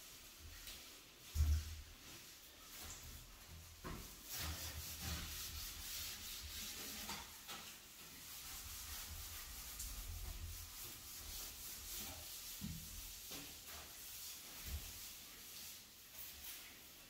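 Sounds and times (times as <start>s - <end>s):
sponge scrubbing shower surface: 0.0s - 17.0s.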